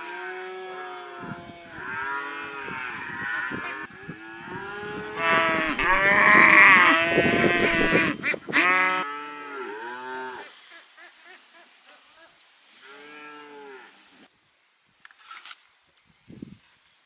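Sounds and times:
cows mooing: 0.0 - 10.4, 12.8 - 13.9.

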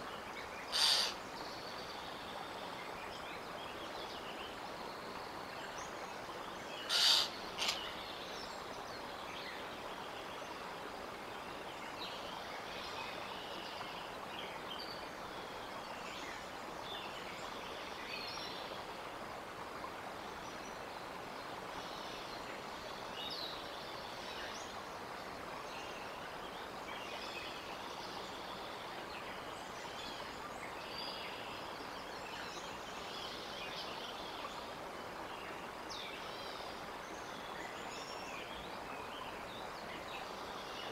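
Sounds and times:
steady outdoor hiss: 0.0 - 40.9
small birds chirping: 0.4 - 10.6.

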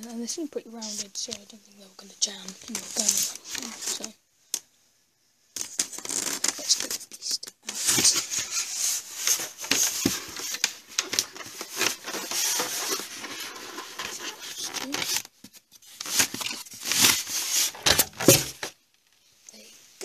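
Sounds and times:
plastic scraping on packaging: 2.3 - 4.2, 5.6 - 18.8.

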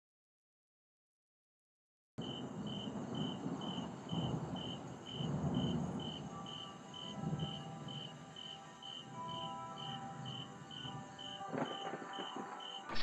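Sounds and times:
thunder rumbling: 2.2 - 8.4, 9.9 - 13.0
crickets chirping: 2.2 - 13.0.

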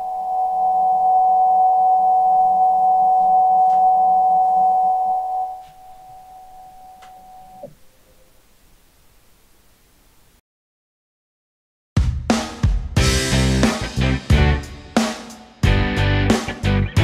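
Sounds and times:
mill axis drive whine: 0.0 - 7.9.

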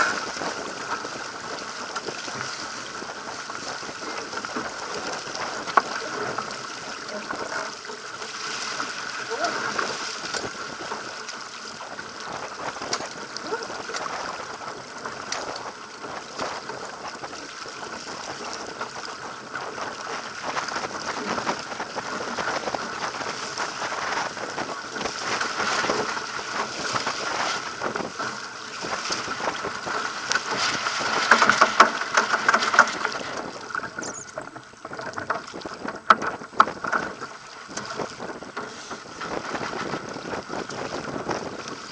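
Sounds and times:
water splashing along boat hull: 0.0 - 41.9
wind buffeting microphone: 34.8 - 41.9.

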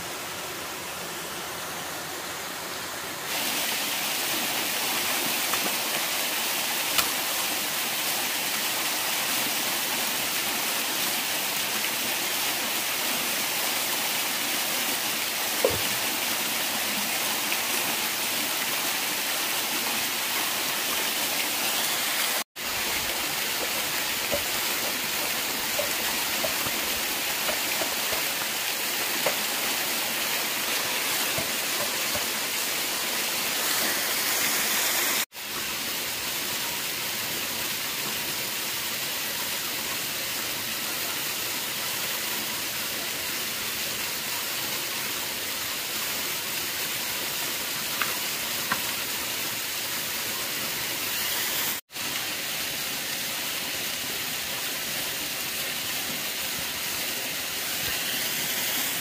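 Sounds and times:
running water rushing: 0.0 - 59.0.

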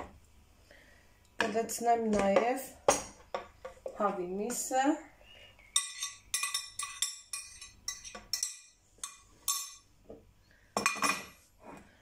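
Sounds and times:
spoon clinking against bowl: 5.7 - 9.9.

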